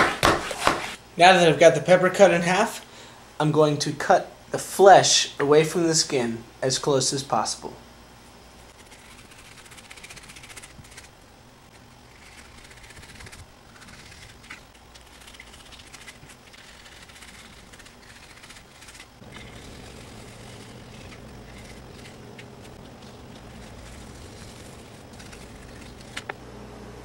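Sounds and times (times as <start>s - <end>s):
low steady hum: 0.0s - 27.0s
knife scraping on cutting board: 12.1s - 26.3s.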